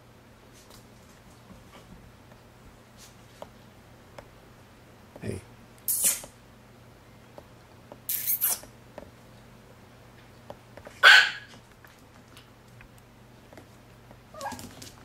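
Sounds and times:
puppy barking: 11.0s - 11.6s.

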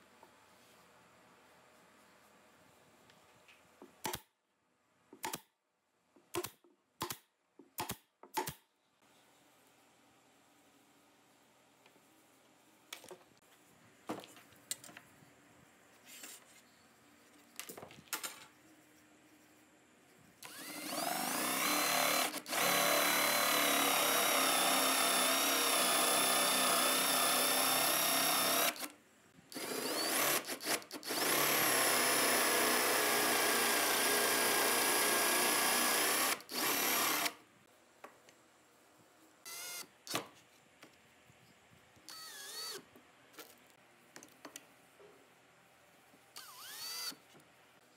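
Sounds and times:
cordless drill boring wood: 20.4s - 28.9s, 29.5s - 37.4s, 42.1s - 42.8s, 46.4s - 47.2s
drill whirring driving a screw: 20.4s - 28.9s, 29.5s - 37.4s, 39.5s - 40.2s, 42.1s - 42.8s, 46.4s - 47.2s.

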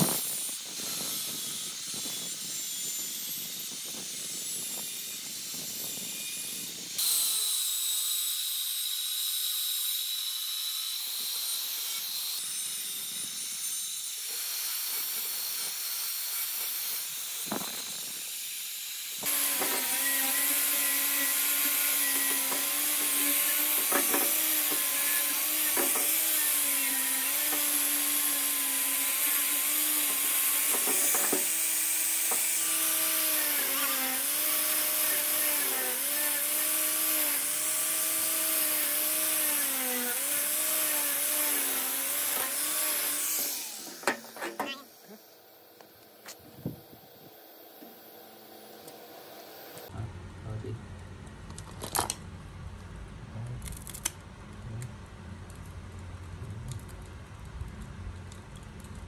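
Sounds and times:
angle grinder grinding metal: 0.0s - 48.1s
grinder motor hum: 19.2s - 50.0s.

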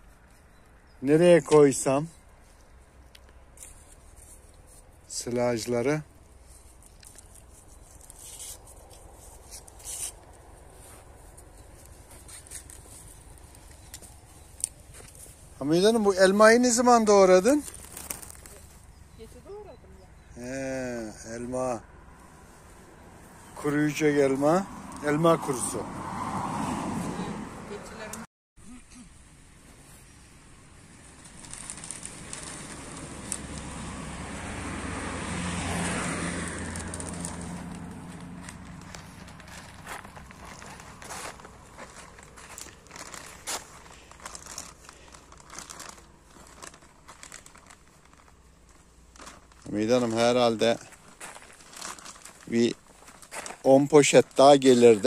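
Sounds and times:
faint rustling and scraping: 1.5s - 19.8s, 36.5s - 55.0s
vehicle engine passing: 20.4s - 28.2s, 32.1s - 43.2s.

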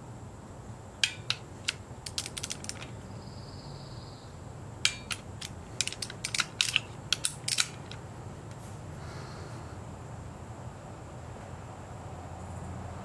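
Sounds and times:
torque wrench clicking: 1.0s - 3.0s, 4.8s - 8.0s.

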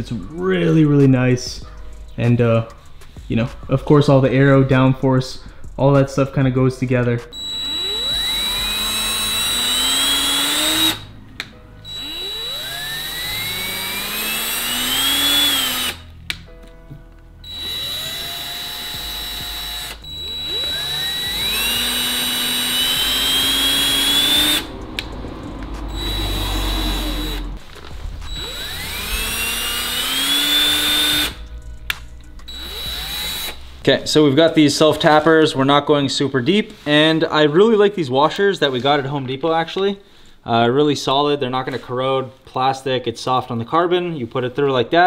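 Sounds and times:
cordless drill whining: 7.3s - 11.1s, 11.8s - 16.1s, 17.4s - 24.8s, 25.9s - 27.6s, 28.2s - 31.5s, 32.5s - 33.6s.

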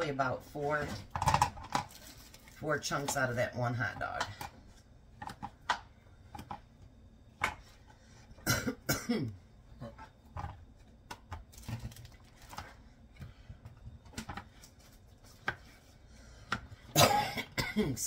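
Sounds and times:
woman coughing: 8.4s - 9.4s, 16.9s - 18.0s.

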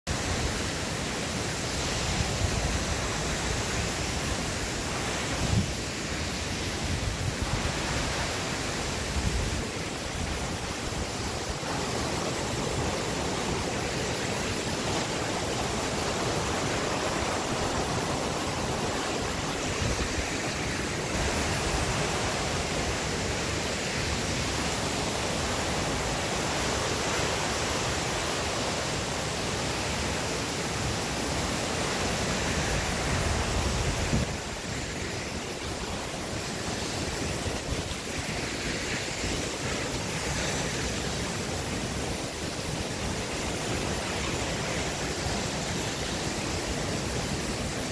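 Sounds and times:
waterfall rushing: 0.1s - 47.9s.

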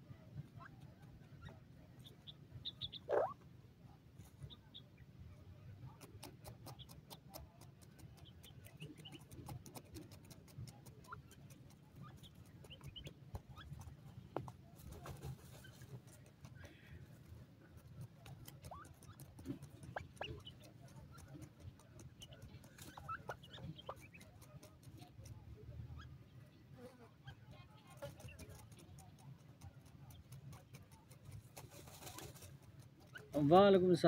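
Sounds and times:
birds chirping: 0.5s - 3.4s, 18.7s - 27.4s
scattered clicks: 6.0s - 14.6s.

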